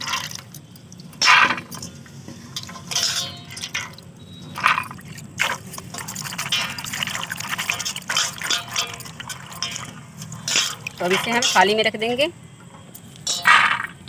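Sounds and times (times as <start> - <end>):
water splashes: 2.9 - 11.8
hands swishing peanuts in water: 4.6 - 11.7.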